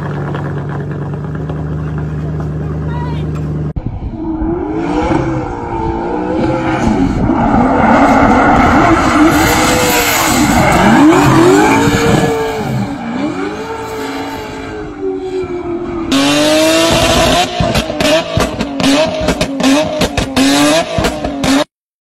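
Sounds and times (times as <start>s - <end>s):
car engine revving: 3.4s - 21.7s
tyres screeching on asphalt: 4.2s - 21.7s.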